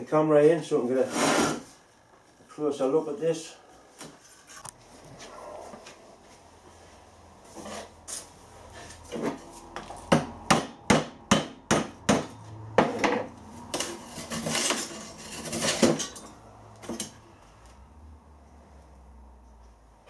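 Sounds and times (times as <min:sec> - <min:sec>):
metal rod scraping ceramic: 0:01.0 - 0:01.6, 0:13.7 - 0:16.4.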